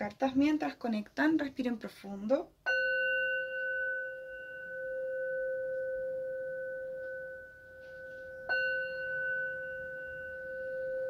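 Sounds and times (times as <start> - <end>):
singing bowl ringing: 2.6 - 11.0.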